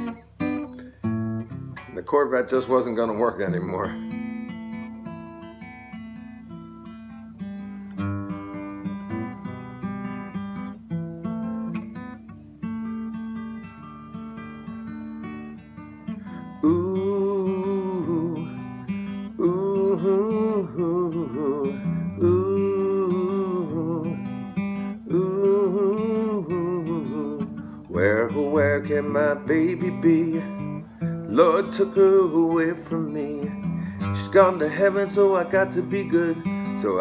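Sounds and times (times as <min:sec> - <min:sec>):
acoustic guitar strumming: 0:00.0 - 0:37.0
wordless vocal melody: 0:16.5 - 0:37.0.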